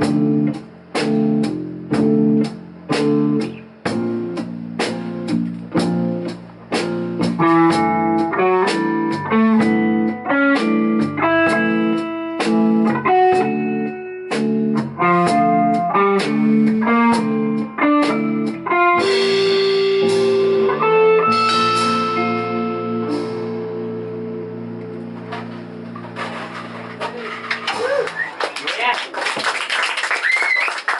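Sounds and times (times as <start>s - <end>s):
rock band playing: 0.0s - 28.9s
cymbal wash: 19.1s - 24.8s.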